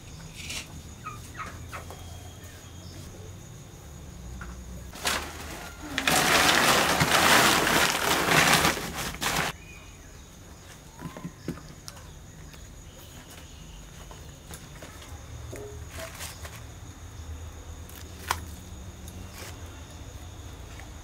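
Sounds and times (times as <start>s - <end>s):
plastic sack rustling: 4.9s - 9.6s.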